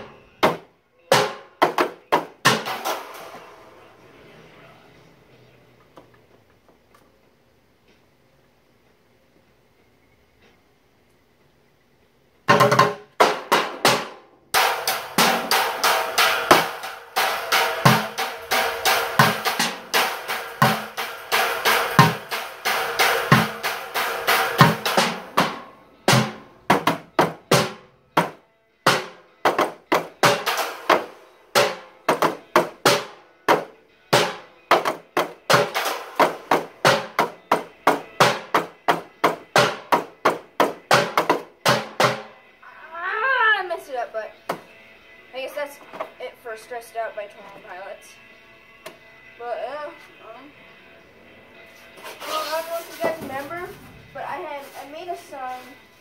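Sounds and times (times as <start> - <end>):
drums played with sticks: 0.0 - 3.6, 12.5 - 42.4, 52.0 - 55.4.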